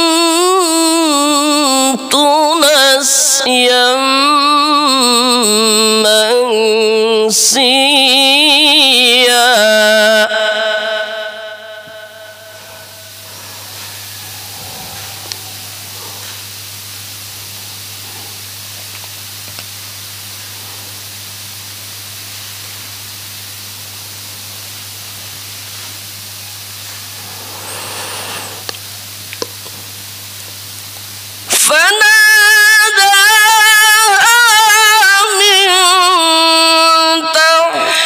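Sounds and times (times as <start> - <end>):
low mains hum: 0.0 - 38.0
microphone hiss: 0.0 - 38.0
breath drawn in: 12.4 - 16.6, 26.8 - 28.8.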